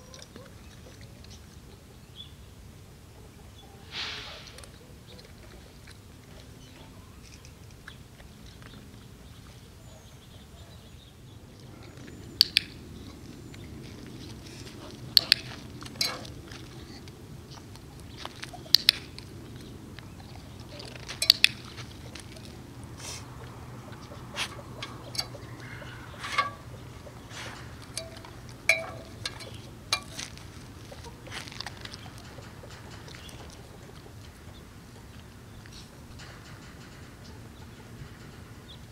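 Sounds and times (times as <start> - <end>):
sharp clicks: 12.0 - 12.8, 15.0 - 16.3, 17.6 - 22.6.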